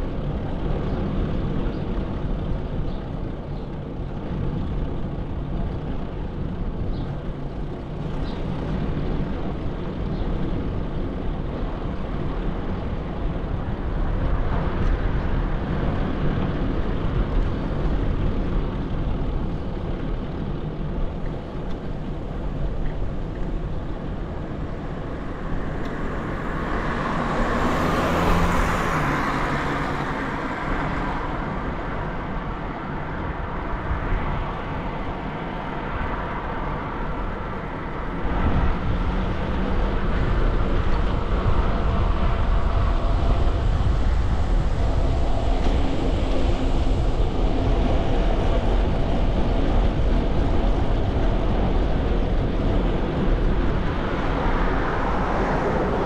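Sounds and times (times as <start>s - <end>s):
city road traffic rumble: 0.0s - 56.0s
vehicle passing close: 24.1s - 56.0s.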